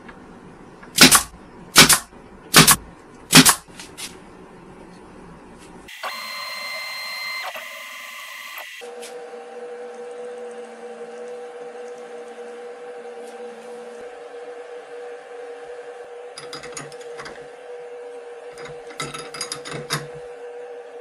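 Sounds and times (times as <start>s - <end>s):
nail gun firing into wood: 1.0s - 3.6s.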